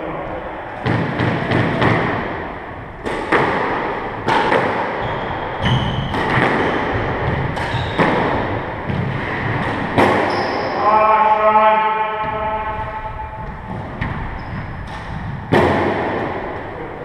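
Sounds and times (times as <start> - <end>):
sneakers squeaking on wooden floor: 4.3 - 10.8, 12.2 - 15.5.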